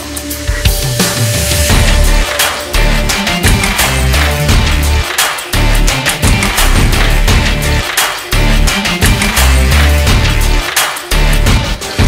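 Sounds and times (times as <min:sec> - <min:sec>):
energetic action music: 0:00.0 - 0:12.0
heavy bass: 0:00.0 - 0:12.0.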